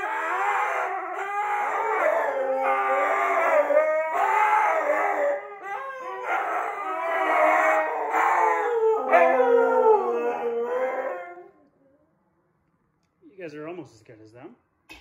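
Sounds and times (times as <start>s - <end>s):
dogs howling: 0.0s - 12.0s.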